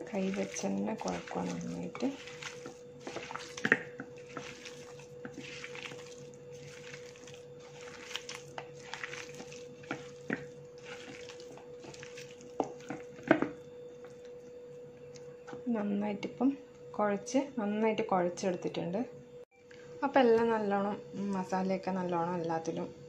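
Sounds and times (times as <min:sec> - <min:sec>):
hand squelching raw meat: 0:00.0 - 0:14.5
faint steady hum: 0:00.0 - 0:23.0.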